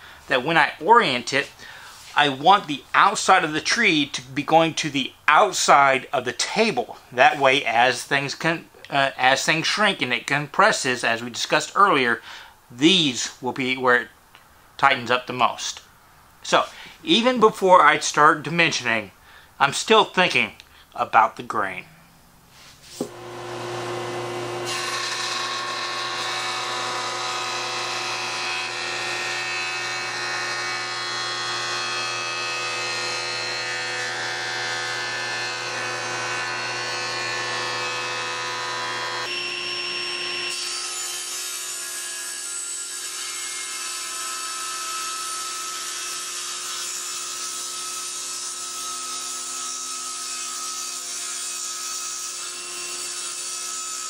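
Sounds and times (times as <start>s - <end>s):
jointer cutting wood: 23.0s - 41.4s
table saw ripping wood: 23.0s - 54.0s.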